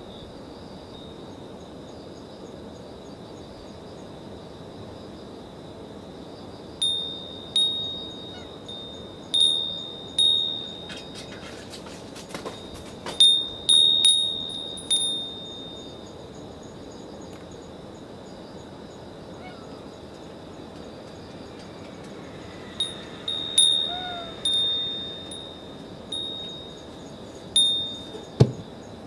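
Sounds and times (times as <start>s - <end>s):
insects chirping: 0.0s - 29.0s
wind bell ringing: 6.8s - 11.7s, 12.4s - 16.2s, 22.7s - 28.6s.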